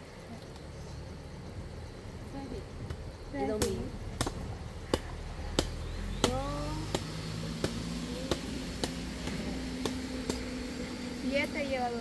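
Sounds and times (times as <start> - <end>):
sharp repeating clicks: 2.9 - 10.7.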